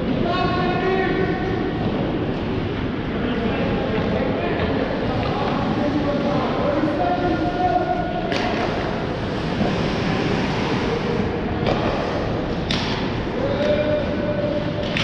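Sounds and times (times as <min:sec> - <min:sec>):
hockey sticks knocking puck: 0:08.3 - 0:09.0, 0:11.6 - 0:13.8, 0:14.8 - 0:15.0
skates hissing on ice: 0:09.2 - 0:11.2.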